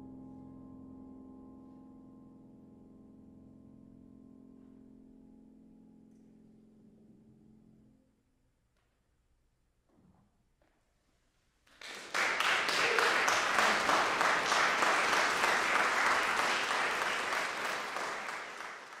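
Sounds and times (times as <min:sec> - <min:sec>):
audience applause: 0:11.7 - 0:19.0.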